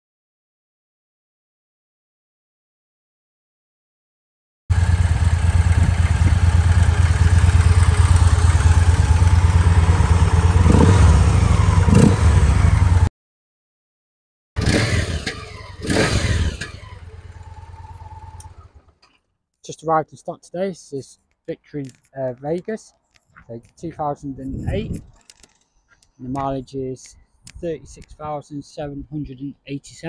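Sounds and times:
motorcycle engine idling: 0:04.7 - 0:13.1, 0:14.6 - 0:19.0.

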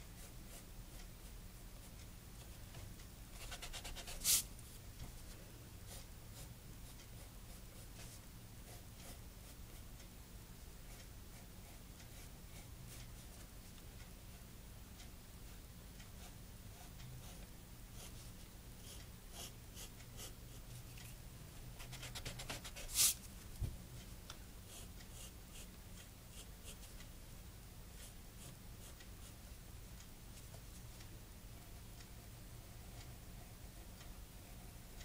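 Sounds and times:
pencil scratching on paper: 0:00.2 - 0:01.9, 0:03.4 - 0:04.5, 0:05.9 - 0:09.9, 0:10.9 - 0:13.4, 0:16.2 - 0:20.6, 0:21.8 - 0:23.2, 0:24.7 - 0:26.9.

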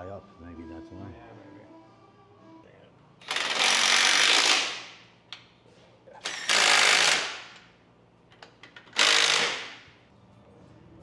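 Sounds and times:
impact wrench rattling: 0:08.3 - 0:09.9.

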